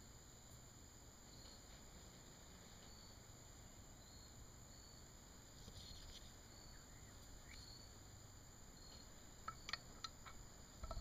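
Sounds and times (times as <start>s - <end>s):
faint room hiss: 0.0s - 11.0s
faint high chirps: 2.7s - 10.2s.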